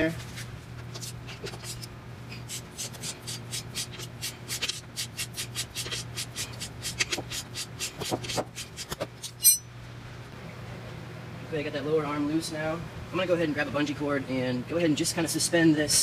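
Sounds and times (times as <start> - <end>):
ringing metallic clink: 9.4 - 9.7.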